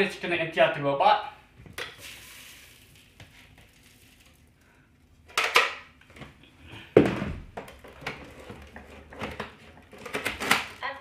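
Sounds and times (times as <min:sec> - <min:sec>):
dry cereal and dirt rattling: 0:02.0 - 0:04.7.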